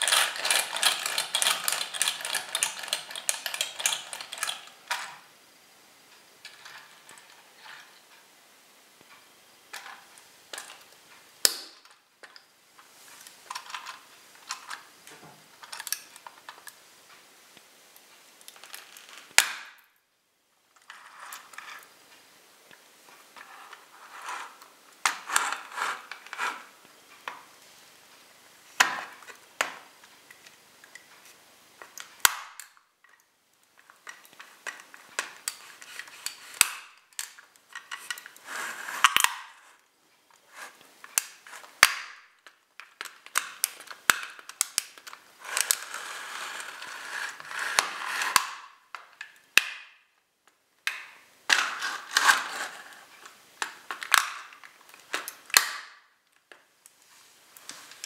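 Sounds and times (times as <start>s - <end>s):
plastic toy creaking and snapping: 0.0s - 5.1s, 42.8s - 48.7s, 50.9s - 55.9s.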